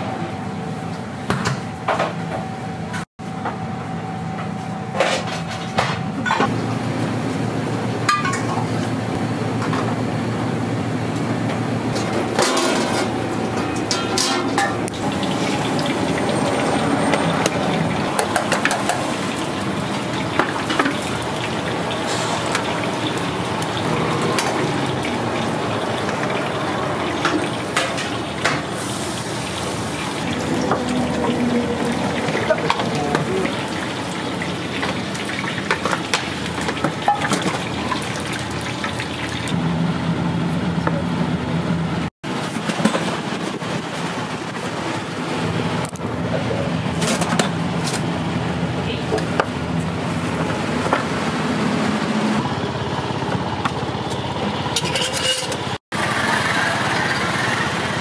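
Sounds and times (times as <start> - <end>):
dishes and utensils clattering: 8.1 - 8.7, 11.9 - 14.9, 27.1 - 28.7, 30.2 - 33.6, 34.8 - 38.0, 54.7 - 55.8
kitchen din: 8.1 - 8.8, 11.9 - 19.4, 20.1 - 39.5, 54.7 - 55.8
running tap water: 14.8 - 39.6.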